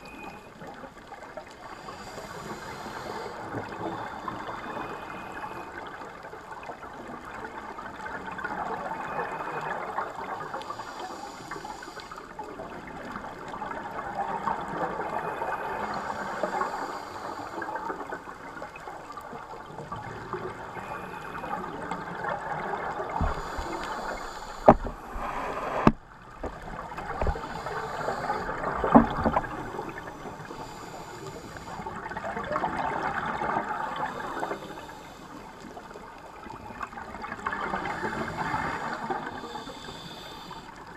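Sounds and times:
bubbles gurgling and hissing: 0:00.0 - 0:40.9
regulator breathing underwater: 0:01.6 - 0:05.9, 0:09.0 - 0:12.4, 0:14.6 - 0:18.5, 0:20.1 - 0:36.0, 0:37.4 - 0:40.9.

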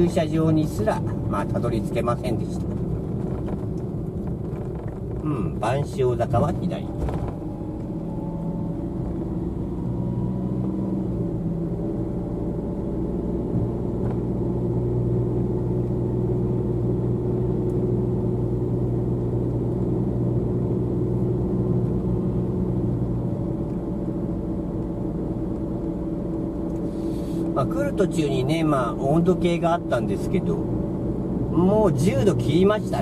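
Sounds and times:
car engine drone: 0:00.0 - 0:33.0
road noise: 0:00.0 - 0:33.0.

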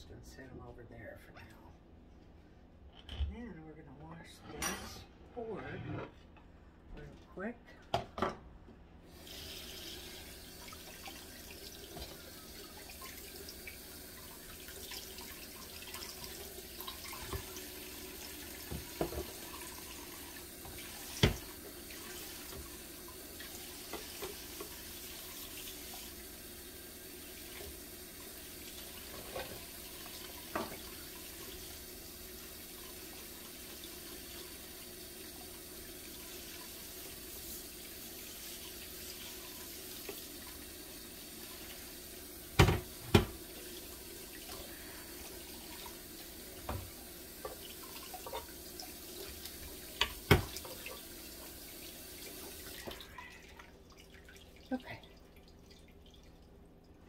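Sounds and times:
tap running into sink: 0:18.5 - 0:19.7, 0:20.6 - 0:22.8, 0:29.0 - 0:31.1, 0:42.6 - 0:43.5, 0:46.6 - 0:48.5, 0:49.4 - 0:50.9
objects clunking in sink: 0:18.6 - 0:19.5, 0:20.6 - 0:21.6, 0:30.5 - 0:30.9, 0:42.6 - 0:43.4, 0:50.0 - 0:50.8.

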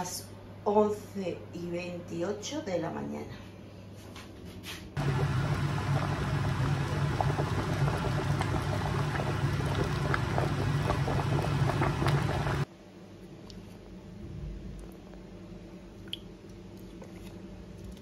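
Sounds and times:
water boiling in a pot: 0:05.0 - 0:12.7.

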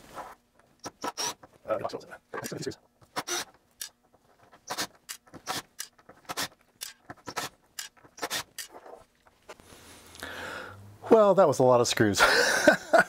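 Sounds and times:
cordless driver removing screws: 0:00.8 - 0:01.4, 0:03.1 - 0:03.9.

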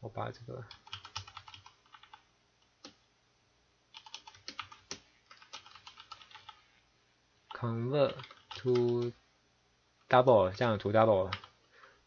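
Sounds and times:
typing on keyboard: 0:00.7 - 0:02.2, 0:03.9 - 0:06.6, 0:08.1 - 0:09.1, 0:11.3 - 0:11.5.

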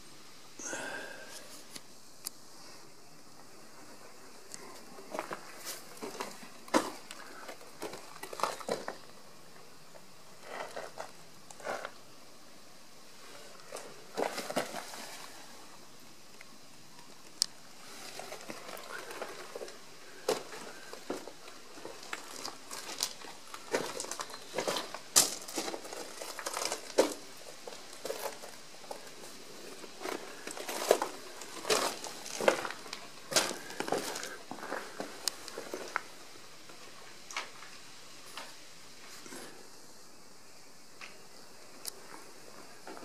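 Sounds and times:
footsteps crunching on gravel: 0:05.1 - 0:09.1, 0:17.8 - 0:36.2.

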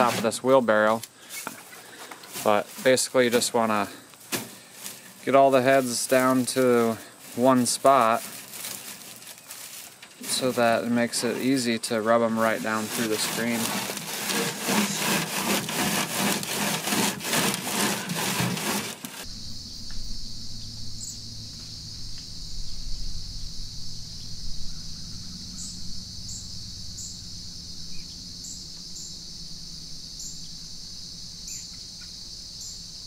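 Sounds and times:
wheat rasping on wire screen: 0:00.0 - 0:00.4, 0:04.8 - 0:19.3
insect chorus: 0:00.0 - 0:15.3, 0:18.4 - 0:33.0
insect chirps: 0:00.5 - 0:12.8, 0:19.2 - 0:33.0.

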